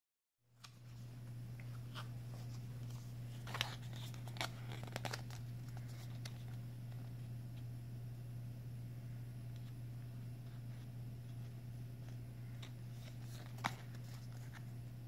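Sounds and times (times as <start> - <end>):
low hum: 0.6 - 15.0
business cards clicking and rustling: 1.6 - 7.7, 10.5 - 14.8.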